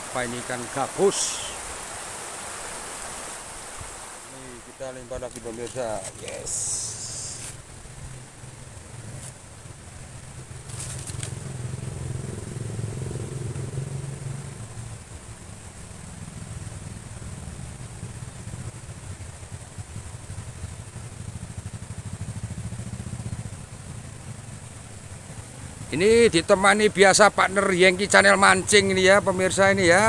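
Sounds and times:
small engine fluttering drone: 6.4s - 26.0s.

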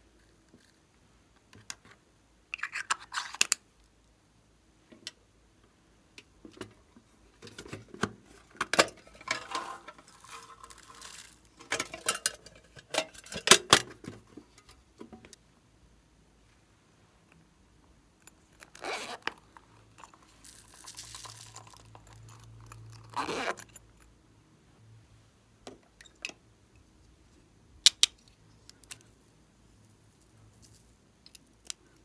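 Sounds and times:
plastic pieces clicking and rattling: 8.8s - 13.6s.

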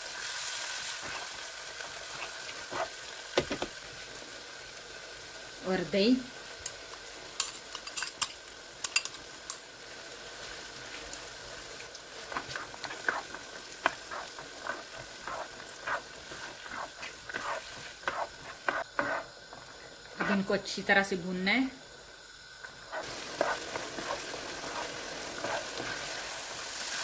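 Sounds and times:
curry sizzling in a frying pan: 0.0s - 27.0s
spoon stirring and scraping: 1.0s - 1.4s, 12.2s - 20.5s, 22.6s - 26.3s.

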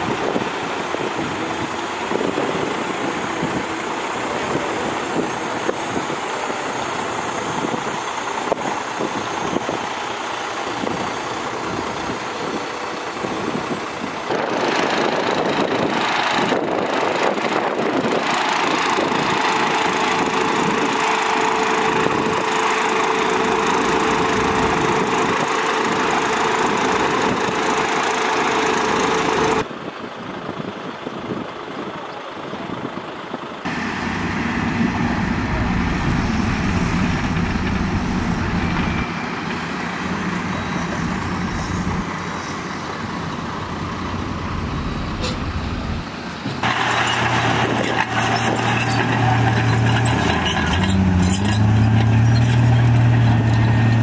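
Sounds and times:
deep engine rumble: 0.0s - 46.8s
dump trucks running: 0.0s - 54.0s
steady whine: 33.7s - 46.6s.

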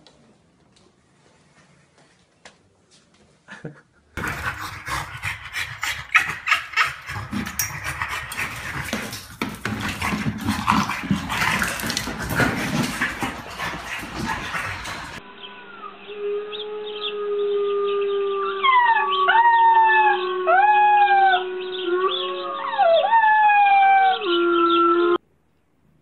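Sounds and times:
paws clicking on wooden floor: 6.9s - 15.2s.

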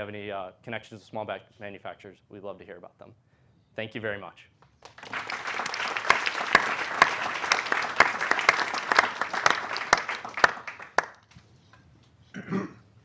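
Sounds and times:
audience applauding: 4.8s - 11.3s.

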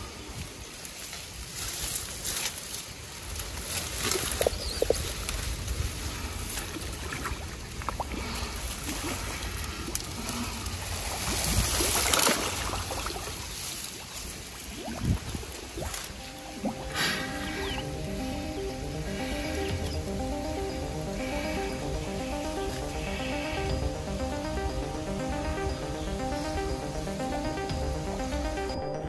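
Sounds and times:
small water splashes: 6.1s - 16.9s
water sloshing and gurgling: 6.5s - 17.9s.

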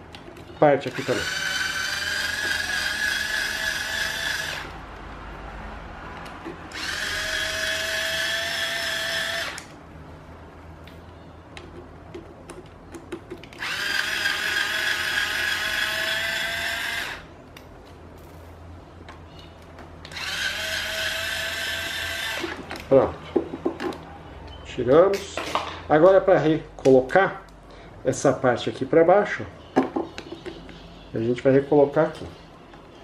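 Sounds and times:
electric screwdriver whining: 0.9s - 4.8s, 6.7s - 9.8s, 13.5s - 17.3s, 20.1s - 22.6s.

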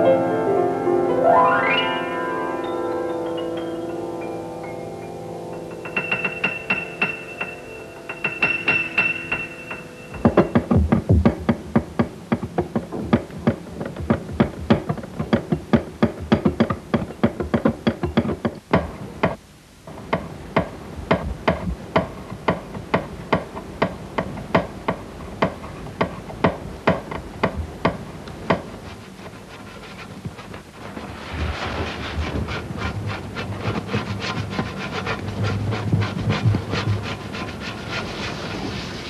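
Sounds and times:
rapid sharp knocks: 5.8s - 19.4s, 20.1s - 28.8s.

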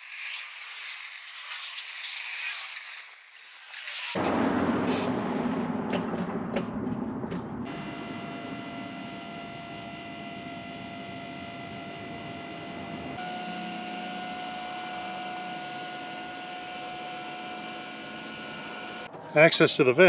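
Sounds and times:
hydraulic pump motor whining: 7.8s - 19.1s.

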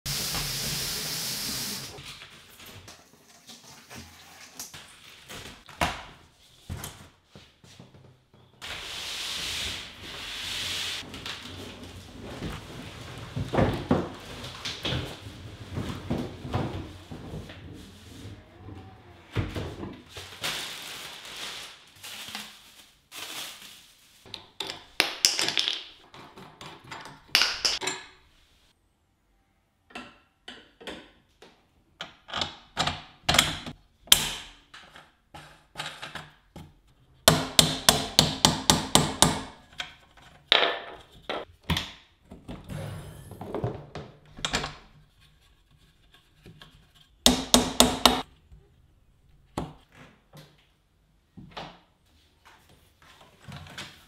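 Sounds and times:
cardboard and plastic rustling: 11.0s - 18.4s, 19.4s - 24.3s.

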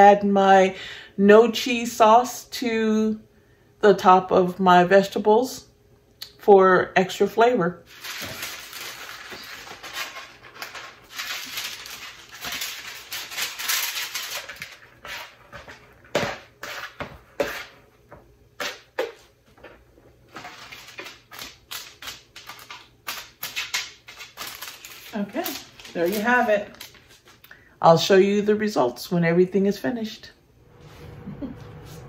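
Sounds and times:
parchment paper crackling: 7.9s - 17.6s, 20.3s - 27.5s.

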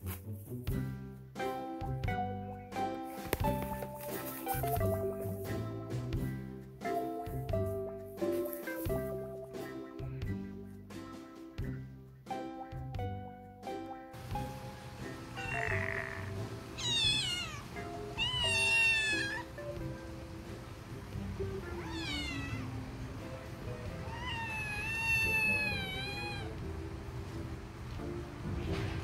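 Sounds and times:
background music: 0.0s - 29.0s
kitten meowing: 15.4s - 19.5s, 21.8s - 22.7s, 24.0s - 26.6s.

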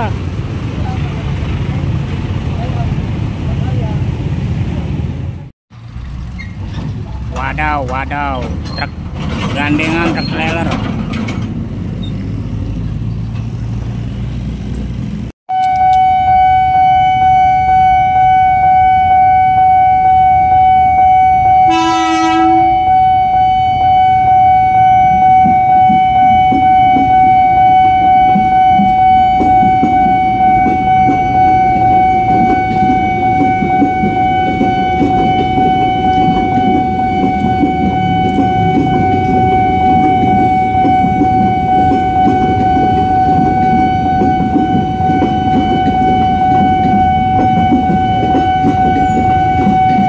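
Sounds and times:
rumbling road traffic: 0.0s - 50.0s
train passing rumble: 0.0s - 50.0s
level-crossing alarm ringing: 15.5s - 50.0s
train horn blast: 15.5s - 50.0s.

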